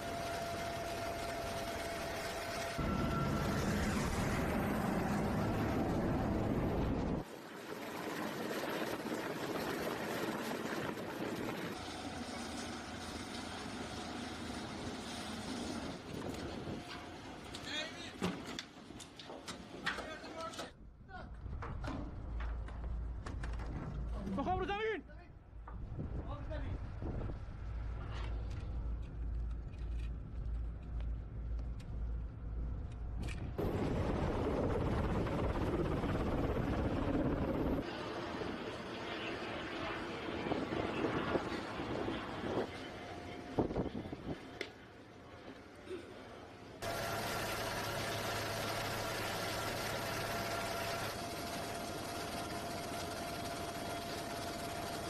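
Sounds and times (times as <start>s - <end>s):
boat engine: 0.0s - 7.2s, 46.8s - 55.0s
low wind rumble: 0.0s - 12.2s, 20.8s - 45.4s
helicopter rotor and turbine noise: 0.0s - 20.5s, 23.3s - 55.0s
steady rushing wind noise: 25.8s - 28.1s, 33.1s - 44.7s.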